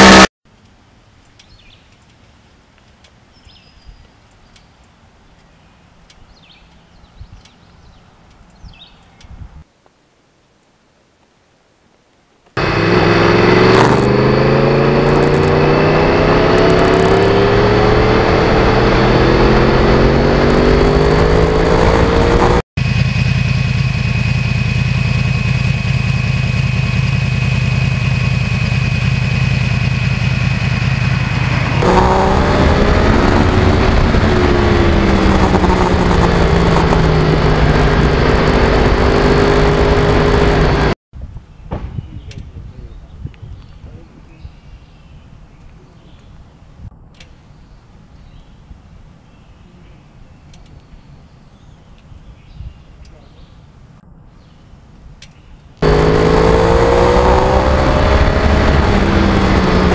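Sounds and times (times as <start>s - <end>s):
motorcycle engine accelerating: 0.0s - 0.3s, 12.6s - 41.0s, 55.8s - 59.9s.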